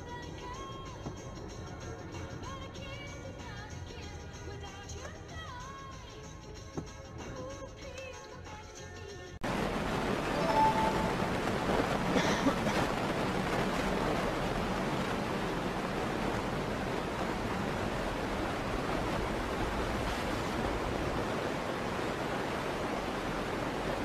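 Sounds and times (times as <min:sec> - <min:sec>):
tyre noise on slushy road: 0:09.4 - 0:24.0.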